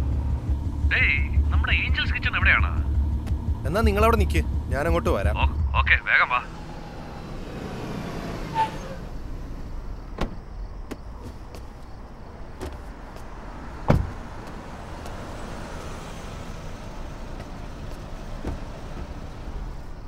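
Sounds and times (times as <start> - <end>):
car engine running: 0.0 - 20.0
car door shutting: 10.1 - 11.0, 13.8 - 14.6, 18.4 - 19.1.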